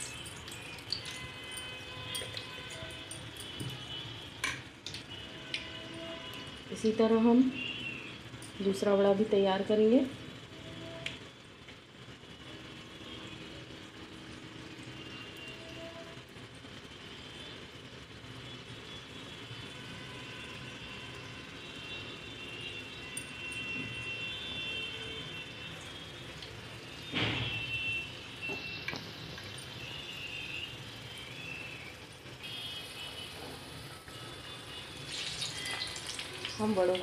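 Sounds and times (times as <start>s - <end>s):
food sizzling in hot oil: 0.0s - 5.7s, 25.4s - 37.0s.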